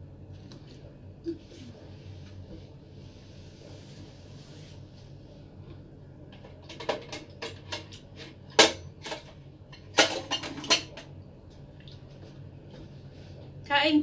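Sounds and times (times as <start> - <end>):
dishes and utensils clicking: 6.4 - 11.1.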